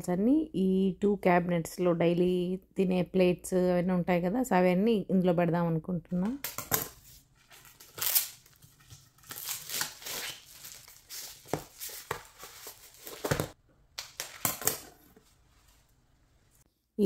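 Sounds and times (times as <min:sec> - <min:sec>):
plastic wrapping crinkling: 0:07.6 - 0:15.0.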